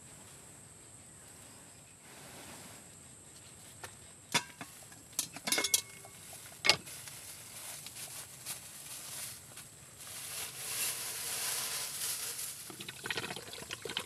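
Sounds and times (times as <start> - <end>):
steel pot and lid clanking: 4.3 - 6.8.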